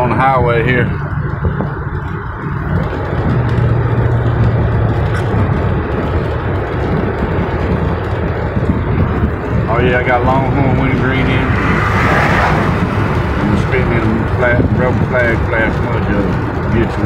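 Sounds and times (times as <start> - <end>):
low engine drone: 0.0 - 17.0.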